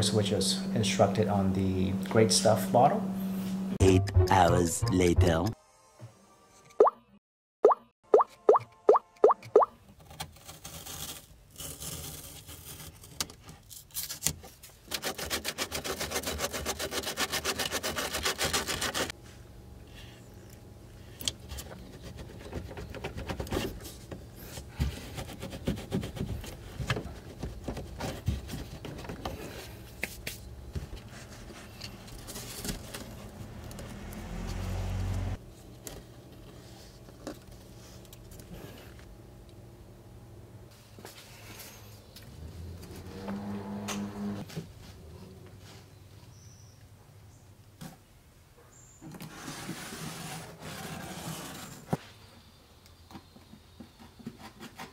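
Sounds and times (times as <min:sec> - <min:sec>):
foam and foil scraping: 0:10.0 - 0:19.2, 0:49.2 - 0:52.0.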